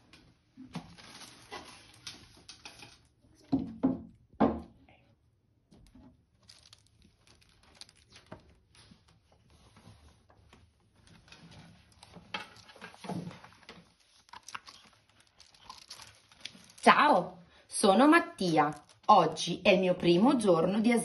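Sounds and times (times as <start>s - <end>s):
book pages turning: 6.4s - 16.8s.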